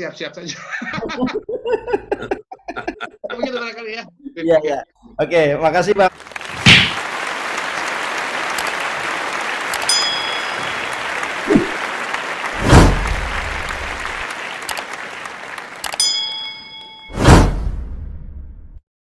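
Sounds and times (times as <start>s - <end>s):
applause hiss: 6.1s - 16.2s
bright ding: 9.9s - 11.0s, 16.0s - 17.4s
loud whoosh: 12.6s - 14.0s
falling swoop: 12.6s - 14.1s.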